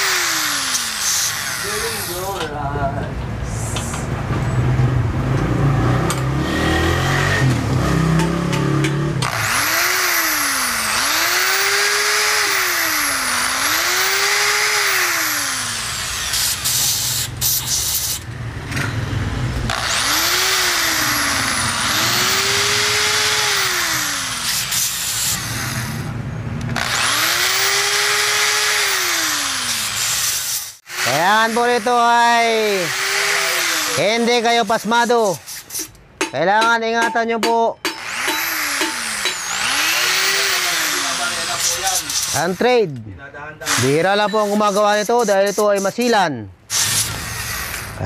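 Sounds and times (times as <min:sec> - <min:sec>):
electric drill boring metal: 0:00.0 - 0:02.5, 0:08.8 - 0:18.3, 0:19.7 - 0:26.1, 0:26.8 - 0:35.4, 0:37.9 - 0:42.8, 0:43.6 - 0:46.1, 0:46.7 - 0:48.0.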